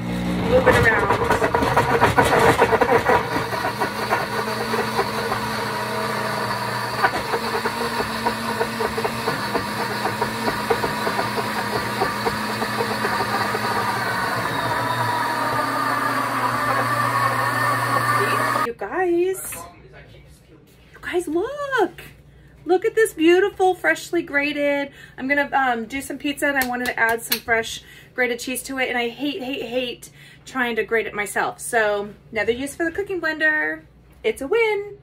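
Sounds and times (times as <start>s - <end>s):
blender motor grinding cheese: 0.0s - 18.7s.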